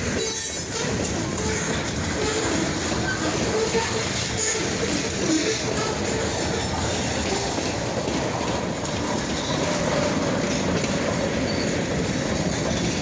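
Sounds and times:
train wheels rumbling over rails: 0:00.0 - 0:13.0
faint wheel squeal: 0:11.5 - 0:11.8.

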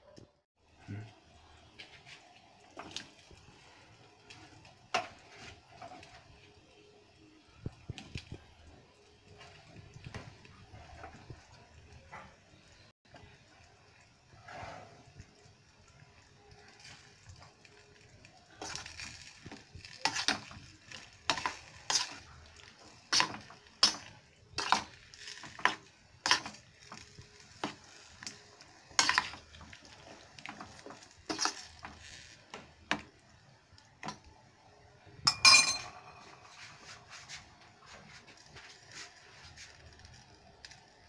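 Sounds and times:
metal spoon scraping a pot: 0:18.6 - 0:32.4
spoon clinking on pot: 0:35.3 - 0:36.5.

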